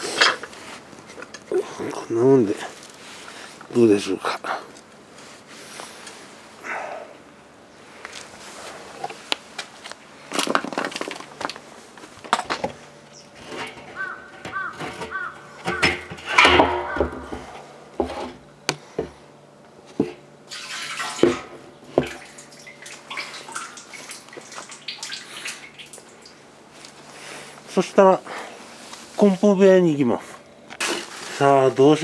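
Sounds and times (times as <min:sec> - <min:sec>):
metal knocks and clatter: 0:13.4 - 0:18.4
oil splashing into metal drum: 0:20.5 - 0:26.4.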